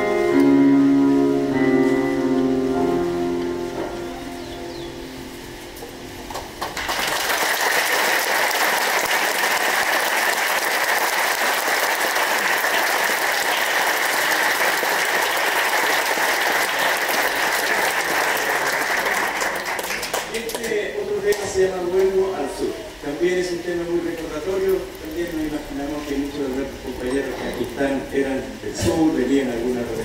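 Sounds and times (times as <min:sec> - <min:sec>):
audience applauding: 0:06.3 - 0:21.4.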